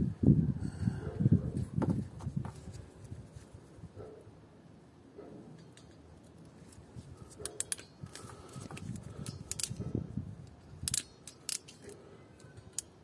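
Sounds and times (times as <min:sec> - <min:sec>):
wires rustling: 0:06.0 - 0:13.0
hand tool clicking: 0:07.4 - 0:09.8, 0:10.8 - 0:13.0.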